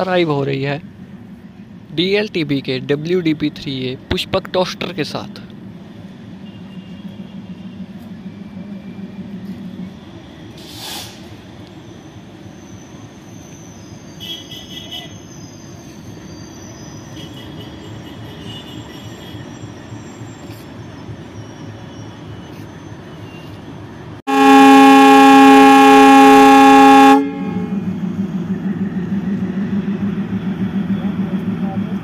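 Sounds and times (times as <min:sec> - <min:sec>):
diesel locomotive rumbling: 0:00.0 - 0:32.0
locomotive horn blast: 0:24.3 - 0:28.0.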